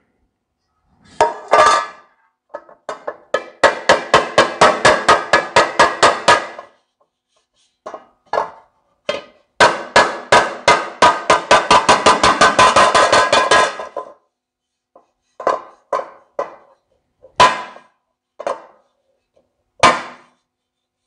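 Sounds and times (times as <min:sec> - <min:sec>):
hammer beating sheet metal: 0:01.2 - 0:06.8, 0:07.9 - 0:14.2, 0:15.4 - 0:18.8, 0:19.8 - 0:20.4.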